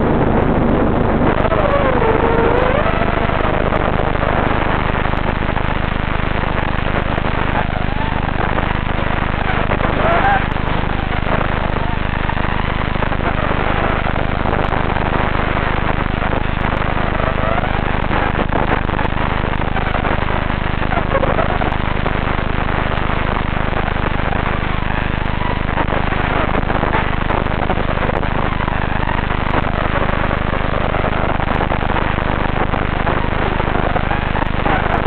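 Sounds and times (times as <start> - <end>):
steady hiss and low hum: 0.0 - 35.0
quadcopter motors whining: 1.4 - 3.7.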